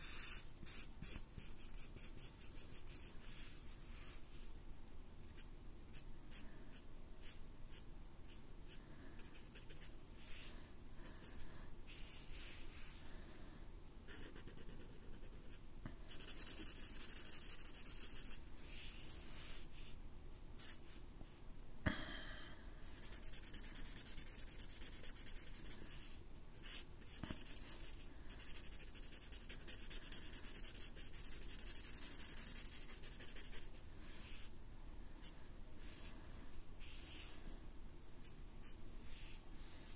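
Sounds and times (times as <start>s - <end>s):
marker drawing on paper: 0.0s - 4.5s, 11.3s - 13.0s, 14.1s - 20.0s, 20.6s - 21.0s, 23.0s - 34.5s, 35.2s - 36.2s, 36.8s - 37.5s, 38.6s - 39.9s.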